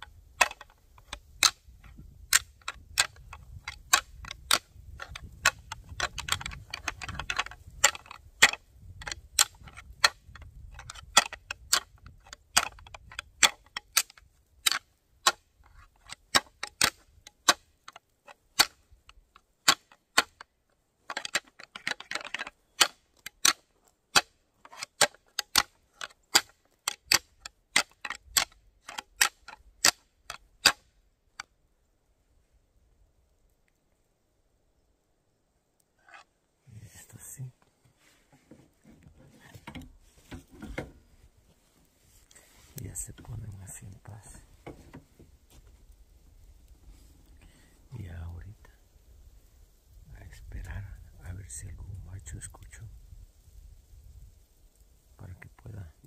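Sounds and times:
antlers clacking together: 0.4 - 20.5, 21.1 - 30.9
antlers grinding: 0.4 - 30.8.

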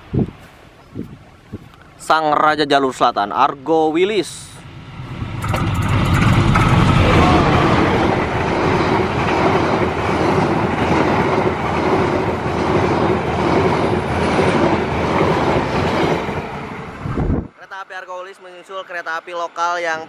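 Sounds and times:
locomotive passing: 1.8 - 17.5
train wheels rumbling on rails: 3.8 - 17.5.

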